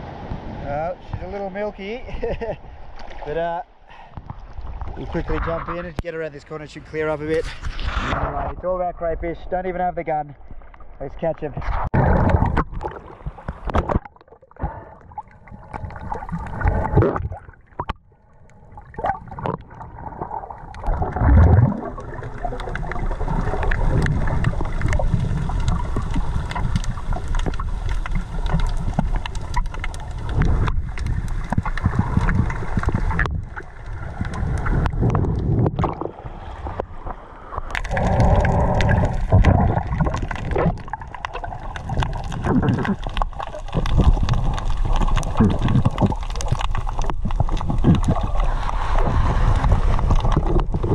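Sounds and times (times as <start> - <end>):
water rushing: 10.1 - 50.9
water splashing and gurgling: 10.3 - 50.9.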